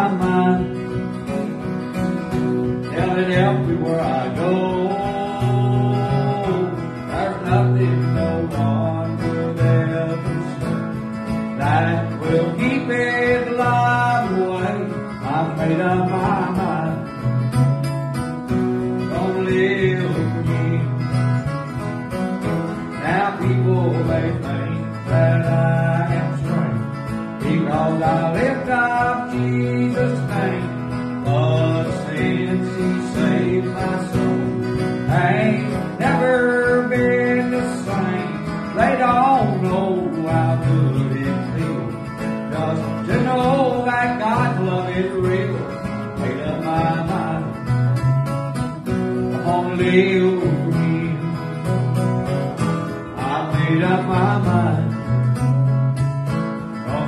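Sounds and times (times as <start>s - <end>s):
man singing: 0.0s - 17.6s, 18.6s - 21.8s, 22.4s - 55.4s, 56.7s - 57.0s
acoustic guitar strumming: 0.0s - 57.0s.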